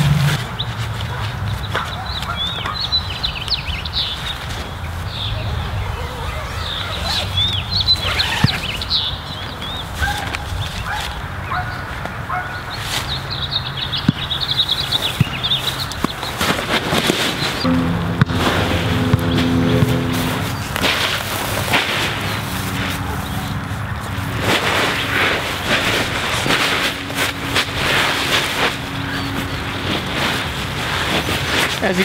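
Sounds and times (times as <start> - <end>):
small birds chirping: 0.5 - 17.7, 28.8 - 32.0
steady low rumble: 17.6 - 31.9.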